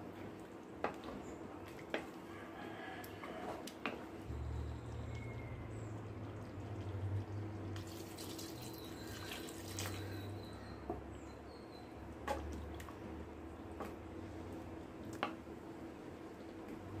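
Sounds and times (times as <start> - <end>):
wooden spatula stirring pot: 0.2 - 2.2
water pouring into curry: 5.8 - 10.4.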